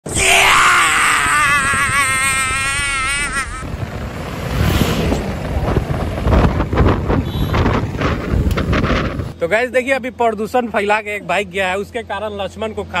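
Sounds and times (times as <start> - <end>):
wind buffeting microphone: 0.8 - 9.4
man laughing loudly: 1.0 - 3.7
motorcycle engine and road noise: 1.6 - 13.0.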